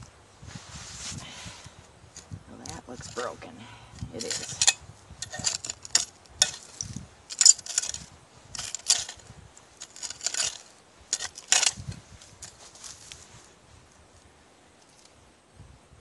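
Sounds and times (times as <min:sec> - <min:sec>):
digging tool scraping through debris: 0:02.7 - 0:03.4, 0:04.0 - 0:13.3.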